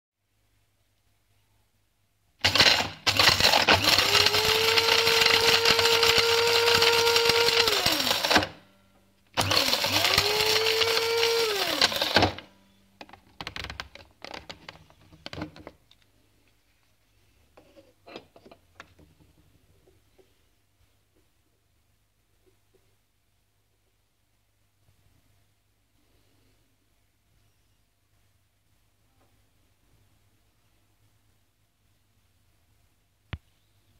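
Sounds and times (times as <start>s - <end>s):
coffee grinder motor whine: 2.4s - 8.6s, 9.4s - 12.5s
knocks and clicks of handling: 13.0s - 16.1s, 17.6s - 20.3s.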